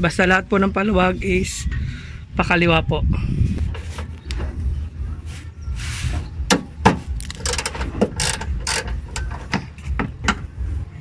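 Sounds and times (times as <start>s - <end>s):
metallic wrench clicks: 7.2s - 9.3s
ratchet clicking: 7.2s - 9.4s.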